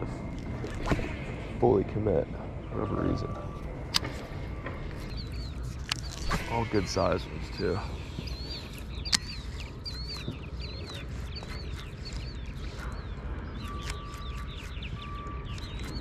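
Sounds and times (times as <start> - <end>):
low background rumble: 0.0 - 16.0
thin steady tone: 1.1 - 5.8
bird chirping: 2.4 - 16.0.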